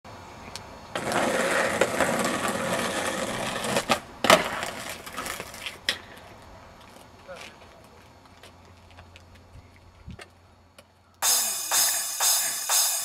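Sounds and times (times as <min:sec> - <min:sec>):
skateboard wheels rolling on asphalt: 0:00.1 - 0:10.9
skateboard clacking on pavement: 0:01.0 - 0:06.3.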